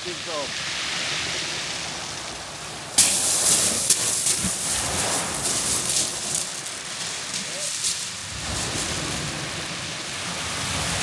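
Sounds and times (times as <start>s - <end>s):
steady hiss: 0.0s - 11.0s
footsteps crunching on pebbles: 3.0s - 9.5s.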